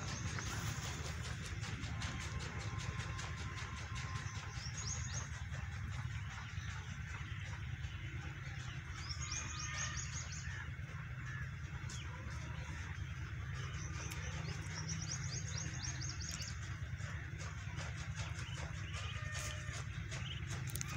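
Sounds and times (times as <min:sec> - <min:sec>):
low background rumble: 0:00.0 - 0:20.9
small bird chirping trill: 0:11.4 - 0:20.9.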